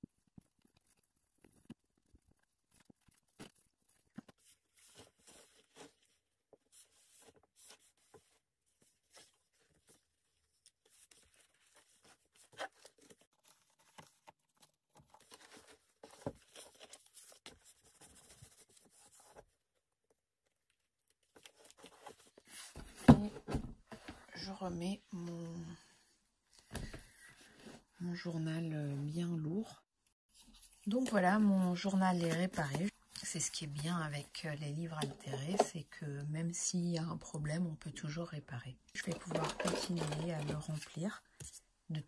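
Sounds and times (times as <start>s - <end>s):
paper rustling: 0.0s - 19.6s, 20.7s - 24.2s.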